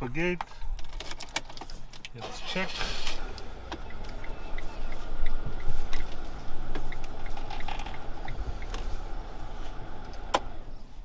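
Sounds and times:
van engine idling: 0:02.2 - 0:11.0
light regular ticking: 0:03.2 - 0:10.6.

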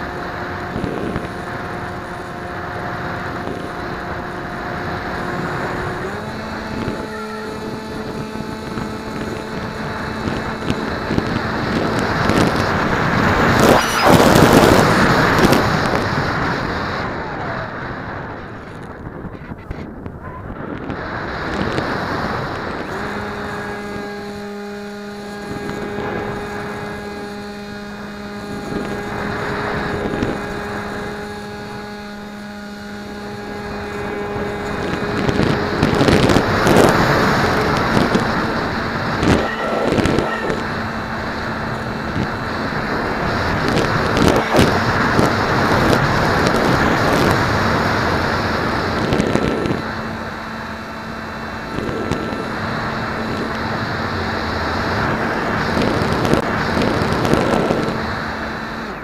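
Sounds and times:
electric motor hum: 0:00.0 - 0:16.8, 0:21.5 - 0:59.0
wind rushing: 0:11.8 - 0:22.7, 0:35.0 - 0:47.9.

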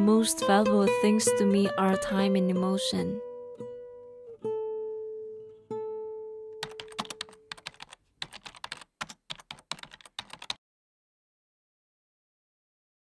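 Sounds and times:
acoustic guitar music: 0:00.0 - 0:07.5
typing clicks sound effect: 0:06.6 - 0:10.6.

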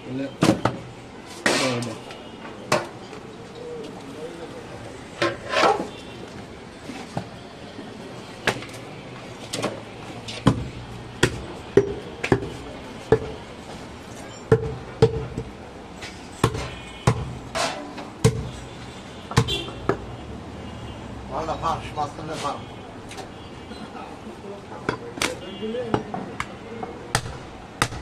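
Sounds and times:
knife chopping on wooden block: 0:27.1 - 0:28.0.

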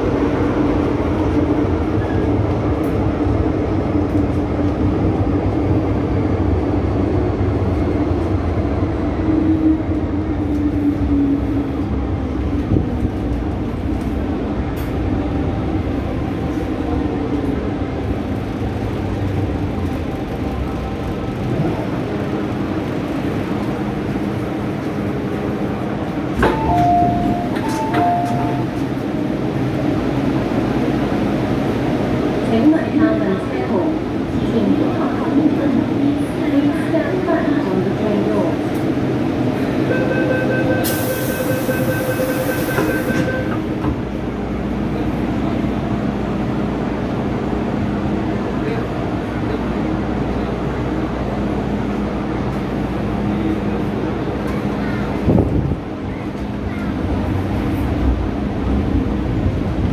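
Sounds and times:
train wheels rumbling on rails: 0:00.0 - 0:59.9
door-closing warning tone: 0:26.4 - 0:28.8, 0:39.9 - 0:43.7.

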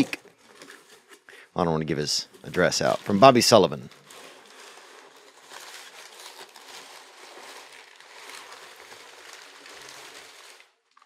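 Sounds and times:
packing paper rustling and crinkling: 0:00.0 - 0:11.0.

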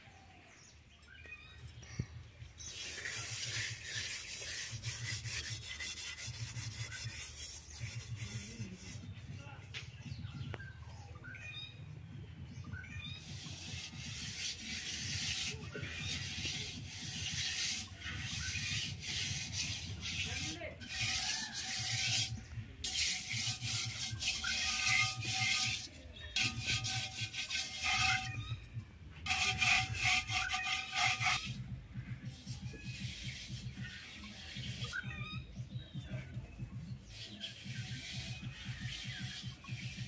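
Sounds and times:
hands scrubbing pots: 0:02.7 - 0:09.2, 0:13.2 - 0:28.5, 0:29.2 - 0:31.6, 0:32.2 - 0:35.1, 0:35.9 - 0:40.0.

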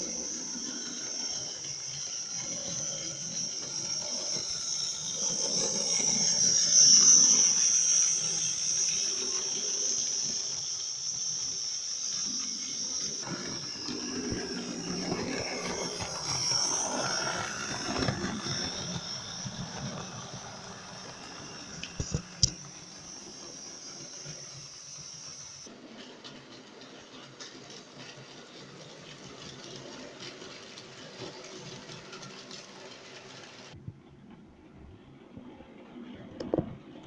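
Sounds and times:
model trains whirring on rails: 0:00.0 - 0:37.0.

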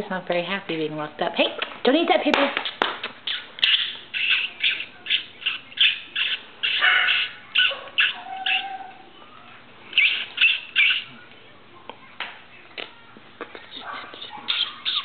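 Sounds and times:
puppy yelping: 0:03.2 - 0:09.1, 0:10.0 - 0:11.2, 0:13.8 - 0:15.0
puppy whining: 0:03.3 - 0:11.2, 0:13.7 - 0:15.0.

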